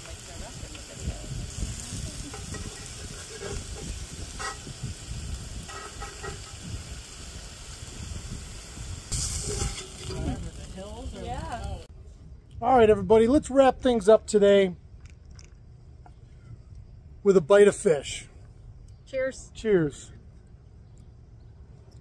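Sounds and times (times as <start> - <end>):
fish fillets sizzling in oil: 0.0 - 11.9.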